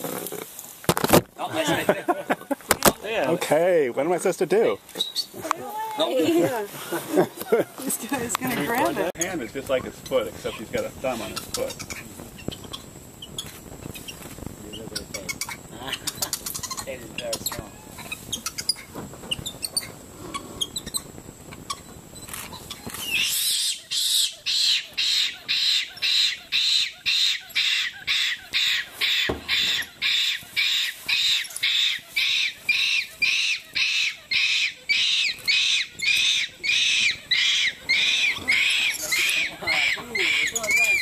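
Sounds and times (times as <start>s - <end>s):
animal calling in harsh pulses: 22.5s - 41.0s.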